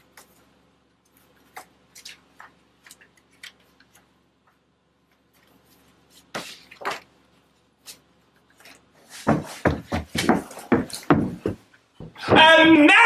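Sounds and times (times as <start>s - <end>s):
paper rustling: 0.0s - 7.2s
footsteps on carpeted stairs: 9.0s - 13.0s.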